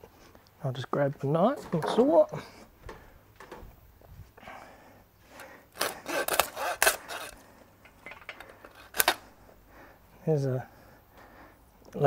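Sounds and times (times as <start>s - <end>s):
hand saw rasping through bone: 5.7s - 7.4s.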